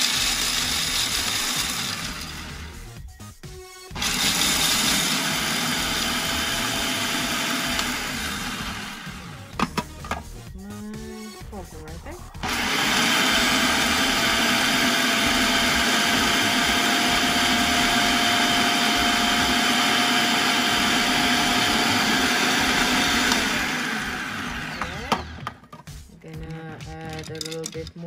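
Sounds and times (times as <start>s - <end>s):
food processor chopping nuts: 0.0s - 2.8s, 3.9s - 10.2s, 12.4s - 25.7s.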